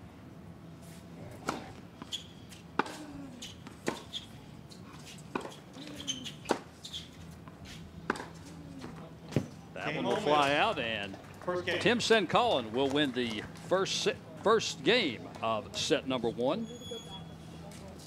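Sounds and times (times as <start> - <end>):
tennis ball hits and bounces: 1.4 - 3.0, 3.6 - 4.2, 5.3 - 6.7, 8.1 - 8.4.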